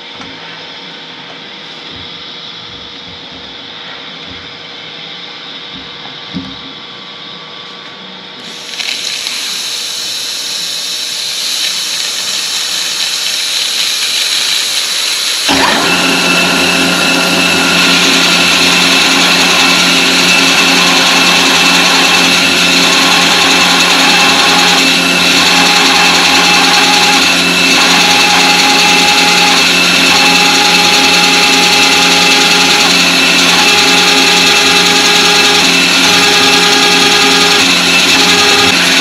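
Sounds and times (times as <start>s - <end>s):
milling machine running: 8.4s - 39.0s
hiss: 8.5s - 15.5s.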